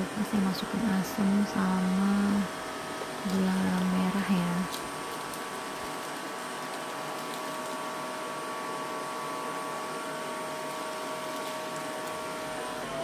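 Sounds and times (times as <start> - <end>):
faint steady hum: 0.0 - 13.0
gas stove burner hissing: 0.0 - 13.0.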